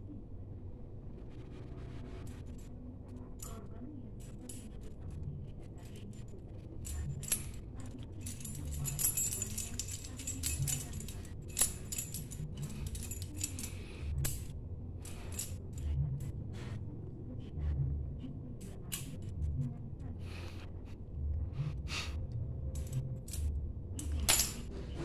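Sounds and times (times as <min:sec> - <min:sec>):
keys jangling and clinking: 0:05.8 - 0:16.0, 0:18.6 - 0:19.3, 0:22.7 - 0:24.7.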